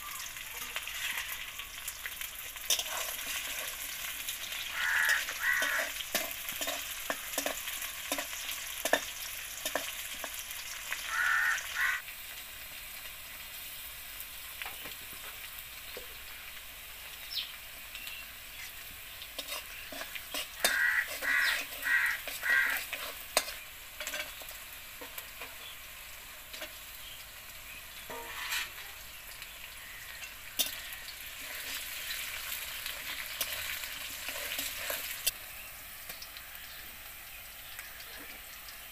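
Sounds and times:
onions sizzling in hot oil: 0.0 - 38.9
metal spatula scraping a wok: 2.6 - 10.5, 18.7 - 25.8, 26.5 - 26.9, 28.0 - 29.0, 30.2 - 35.4.

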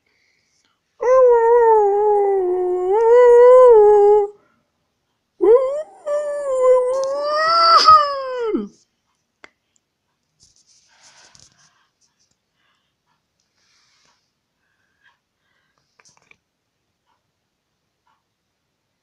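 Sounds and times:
dog howling: 1.0 - 4.4, 5.4 - 8.7.

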